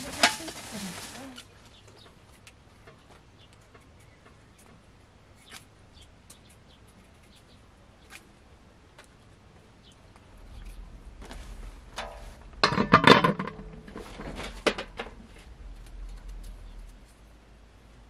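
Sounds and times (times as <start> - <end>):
metal basin clattering: 0.0 - 1.1, 12.0 - 15.2.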